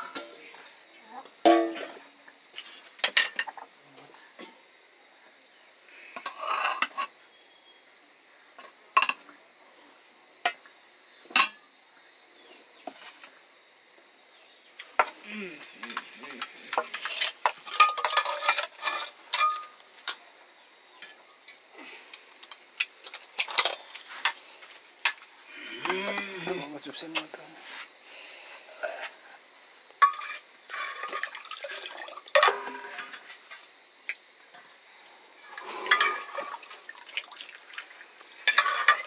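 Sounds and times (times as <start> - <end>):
metal ladle scraping steel pots: 6.2 - 7.1, 16.7 - 19.8, 30.0 - 33.4, 35.4 - 36.6, 38.4 - 39.0.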